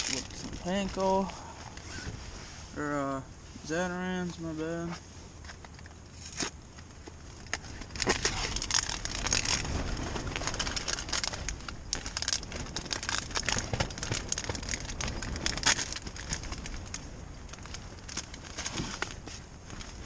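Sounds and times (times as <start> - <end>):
low steady hum: 0.0 - 20.0
plastic packaging crinkling: 7.5 - 19.2.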